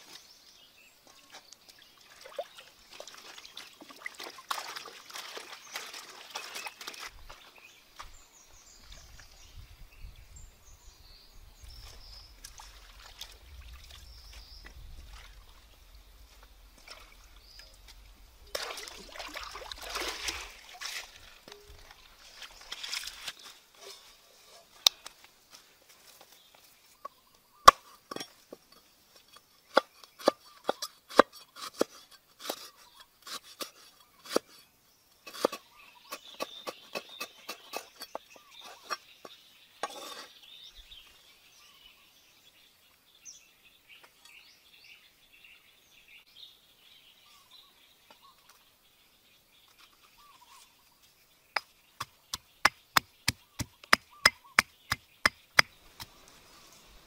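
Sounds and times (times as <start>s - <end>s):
pestle pounding in stone mortar: 52.0s - 55.8s.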